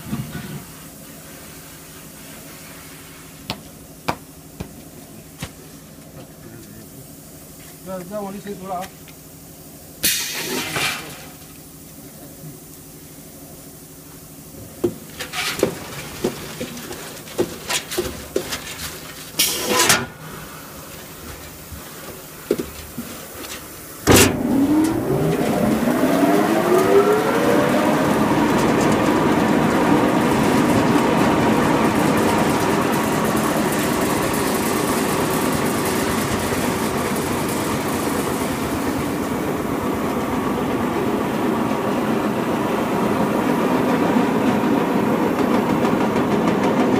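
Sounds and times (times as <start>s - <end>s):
machine starting clunk: 24.0s - 30.9s
centrifuge motor whirring: 24.1s - 31.6s.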